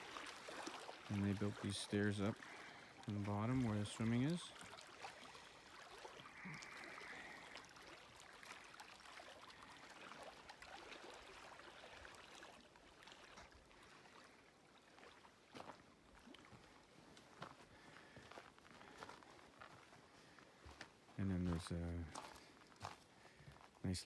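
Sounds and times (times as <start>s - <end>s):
waves lapping on rocky shore: 0.0s - 16.8s.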